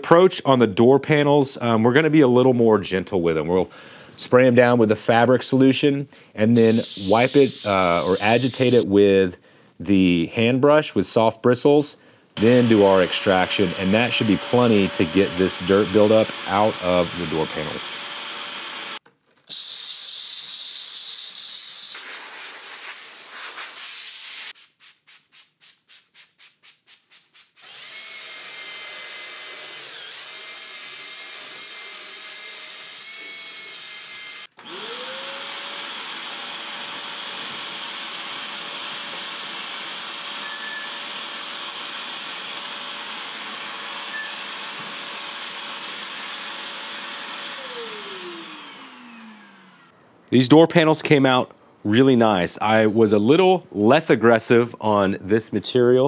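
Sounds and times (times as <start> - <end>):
cordless drill spinning scrub brush: 6.6 - 8.9, 12.4 - 19.6, 27.6 - 50.0
vacuum tool sucking on carpet: 6.6 - 8.9, 12.4 - 19.7
extractor motor whining: 12.4 - 19.0, 34.5 - 49.9.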